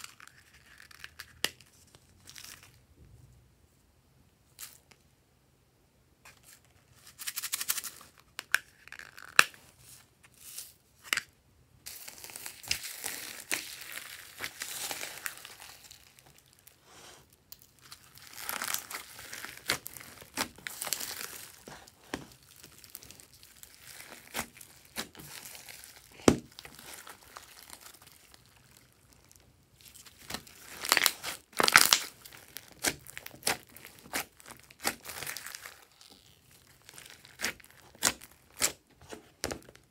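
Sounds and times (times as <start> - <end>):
slime squelching and crackling: 11.9 - 39.9.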